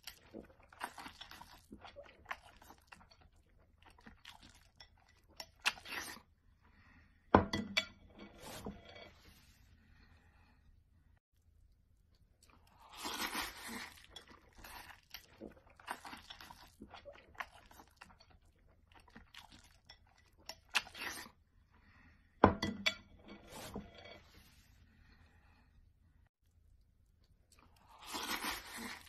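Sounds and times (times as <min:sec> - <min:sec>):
noodles slurped and chewed: 0:00.0 - 0:06.4, 0:11.4 - 0:21.4, 0:26.5 - 0:29.0.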